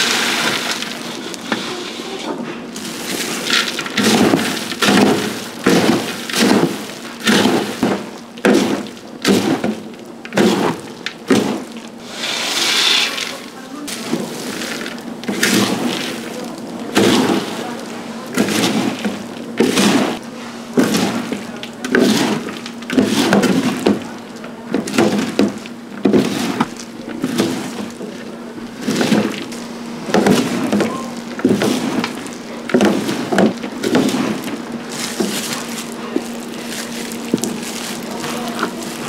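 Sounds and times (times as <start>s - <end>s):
steady low hum: 0.0s - 39.0s
knocks and scrapes on wood: 30.1s - 39.0s.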